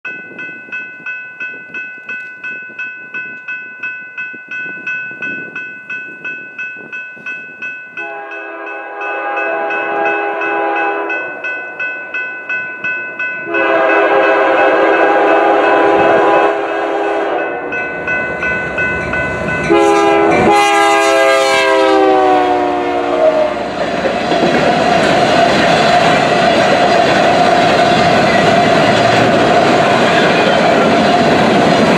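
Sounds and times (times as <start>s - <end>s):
crossing bell dinging: 0.1s - 31.9s
train air horn blasts: 8.0s - 11.4s, 13.5s - 17.7s, 19.6s - 23.8s
freight cars clickety-clack on rails: 23.0s - 31.9s.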